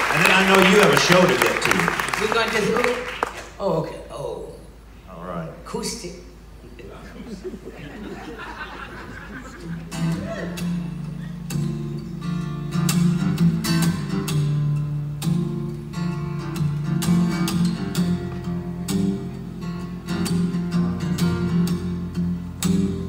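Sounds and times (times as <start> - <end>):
acoustic guitar strumming: 9.6 - 23.0.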